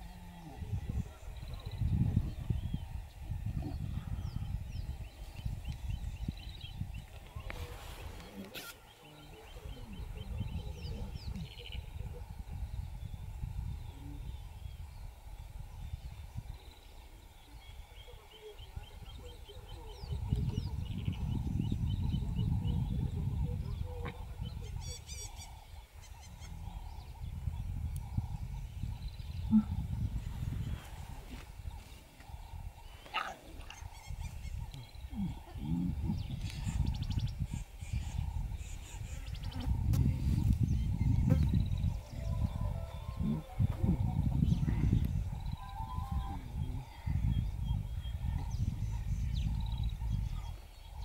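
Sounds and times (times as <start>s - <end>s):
steady low rumble: 26.5s - 51.0s
bird chirping: 31.6s - 51.0s
lions calling: 31.8s - 36.8s.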